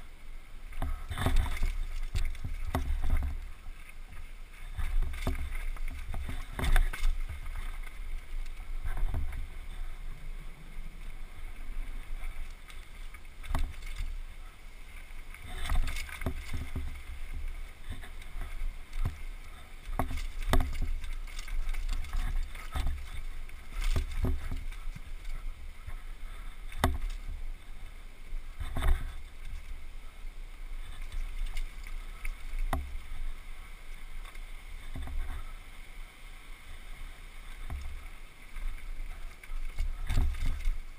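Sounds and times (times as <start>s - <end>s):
wind rumble on microphone: 0.0s - 40.9s.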